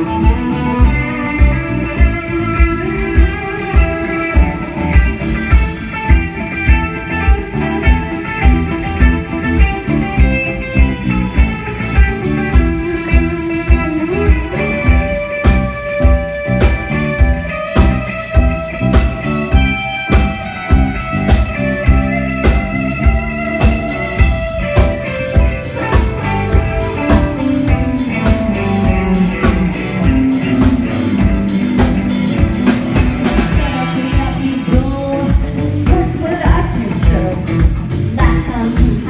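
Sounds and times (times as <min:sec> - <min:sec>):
bass guitar: 0:00.0 - 0:39.0
drum kit beat: 0:00.0 - 0:39.0
electric guitar: 0:00.0 - 0:39.0
keyboards: 0:00.0 - 0:39.0
woman singing: 0:33.4 - 0:39.0.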